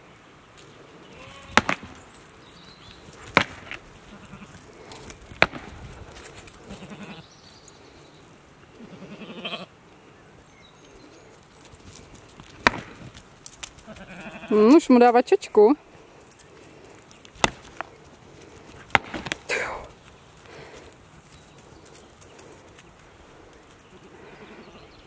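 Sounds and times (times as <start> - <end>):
sheep bleat: 1.1 - 1.6, 4.0 - 4.6, 6.6 - 7.2, 8.8 - 9.7, 13.8 - 14.7
horns cracking together: 16.4 - 21.0.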